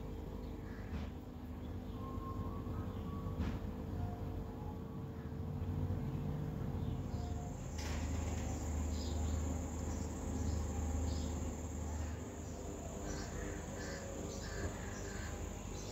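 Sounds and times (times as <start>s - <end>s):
low background hum: 0.0s - 15.9s
faint high whine: 7.1s - 15.9s.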